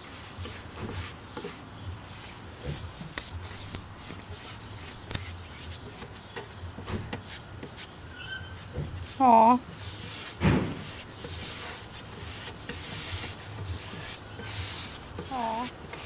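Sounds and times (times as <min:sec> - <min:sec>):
rubbing and handling noises: 0:00.0 - 0:16.0.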